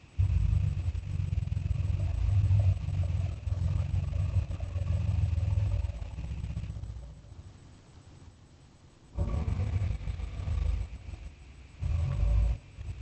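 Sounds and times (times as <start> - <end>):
deep monster growl: 0.2 - 7.1, 9.2 - 13.0.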